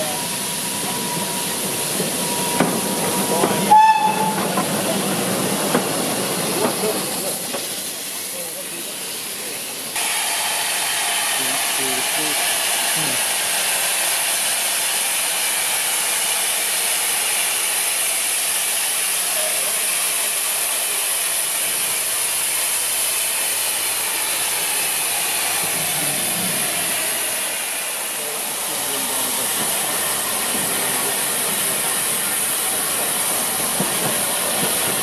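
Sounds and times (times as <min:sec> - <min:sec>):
steam locomotive hissing steam: 0:00.0 - 0:35.0.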